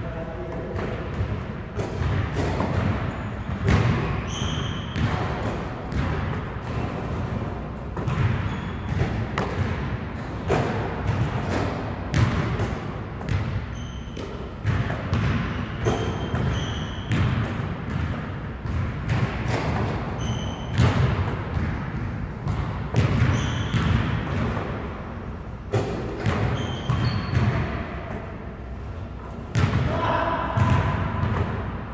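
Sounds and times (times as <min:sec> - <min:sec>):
ball hitting backboard and rim: 0:00.7 - 0:25.0, 0:25.6 - 0:28.3, 0:29.5 - 0:31.9
basketball bouncing on hardwood floor: 0:00.8 - 0:07.4, 0:08.0 - 0:24.8, 0:25.7 - 0:27.8, 0:29.5 - 0:29.9, 0:30.6 - 0:31.6
shoe squeaks: 0:03.0 - 0:05.5, 0:08.1 - 0:09.4, 0:13.6 - 0:14.6, 0:15.6 - 0:17.2, 0:20.1 - 0:21.0, 0:23.2 - 0:23.9, 0:25.7 - 0:27.6.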